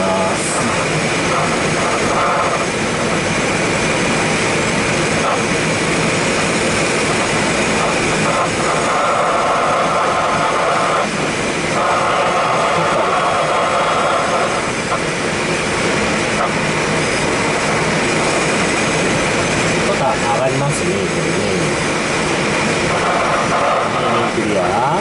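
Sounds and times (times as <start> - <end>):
air rushing around glider cockpit: 0.0 - 25.0.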